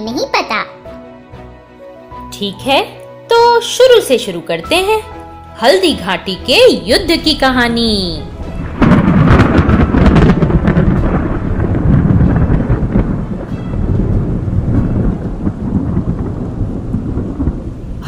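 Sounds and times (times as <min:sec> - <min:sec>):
thunder crack and rumble: 0:06.4 - 0:18.0.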